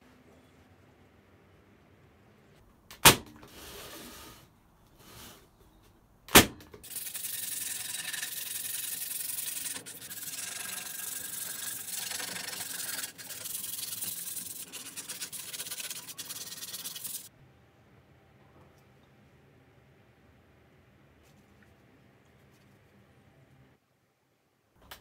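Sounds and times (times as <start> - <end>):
sanding wood: 6.9 - 17.3.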